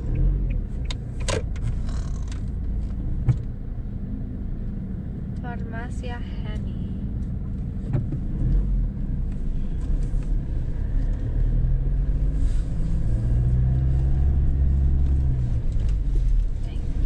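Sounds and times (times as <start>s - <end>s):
car engine hum: 0.0s - 17.0s
road rumble: 0.0s - 17.0s.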